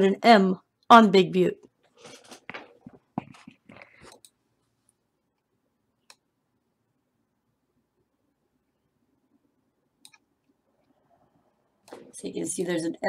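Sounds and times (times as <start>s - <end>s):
computer mouse clicks: 4.0s - 4.4s, 10.0s - 11.0s.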